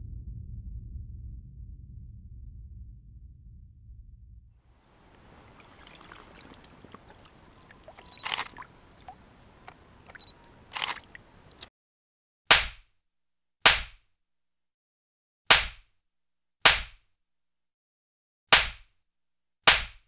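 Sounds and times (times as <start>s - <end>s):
water sloshing and splashing: 4.9s - 11.7s
fish slapping: 5.2s - 11.6s.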